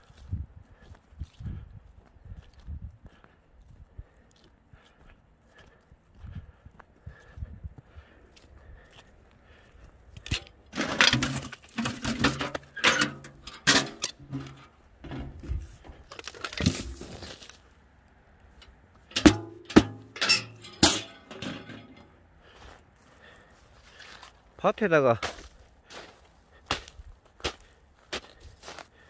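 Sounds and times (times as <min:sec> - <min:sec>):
footsteps on gravel: 0:00.0 - 0:17.8, 0:18.6 - 0:29.0
metal bucket clanking: 0:10.2 - 0:17.4, 0:19.1 - 0:22.1.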